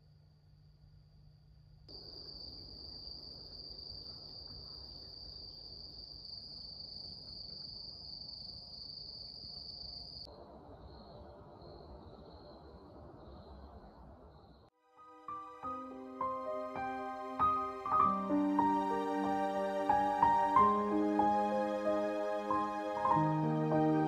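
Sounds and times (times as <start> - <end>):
faint pulsing cricket chirping: 0.0 - 14.7.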